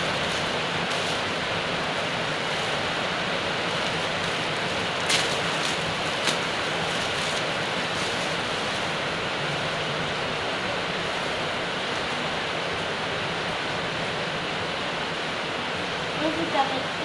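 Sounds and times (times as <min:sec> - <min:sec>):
plastic bag crinkling: 0:00.0 - 0:03.0, 0:03.6 - 0:09.6
steady hiss: 0:00.0 - 0:17.0.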